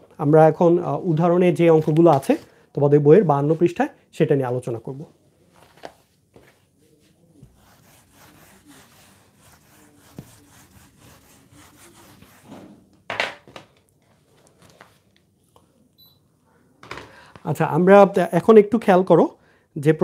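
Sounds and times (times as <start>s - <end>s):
whiteboard being wiped: 5.5s - 12.9s.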